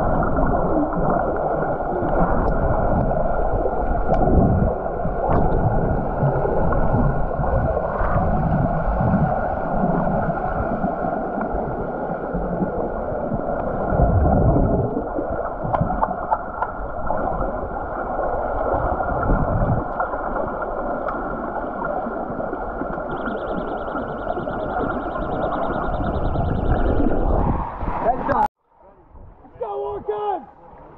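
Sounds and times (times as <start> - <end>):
underwater rushing and gurgling: 0.0 - 28.5
faint high pulsing tone: 23.1 - 27.5.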